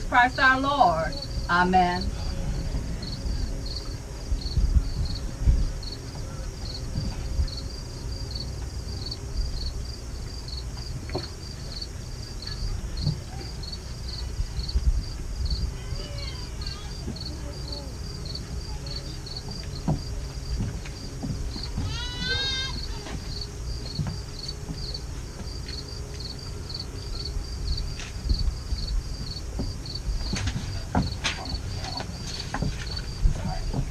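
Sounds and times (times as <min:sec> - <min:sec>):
low rumble: 0:00.0 - 0:11.0
insect chirping: 0:00.0 - 0:33.9.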